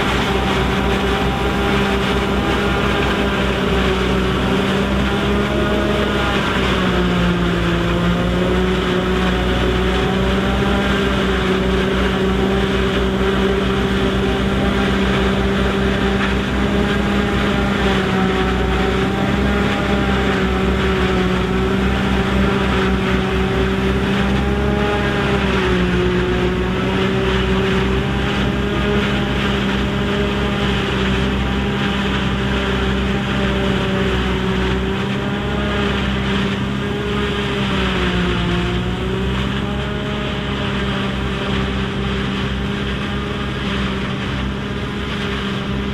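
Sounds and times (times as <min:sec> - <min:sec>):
diesel tractor engine under load: 0:00.0 - 0:45.9
forage harvester chopping corn: 0:00.0 - 0:45.9.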